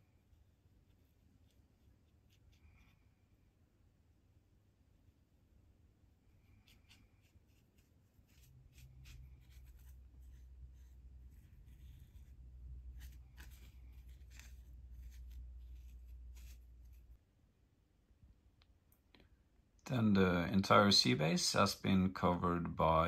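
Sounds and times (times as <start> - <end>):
paintbrush scratching and dabbing: 0.0 - 3.3, 6.2 - 17.3
low steady hum: 0.0 - 23.0.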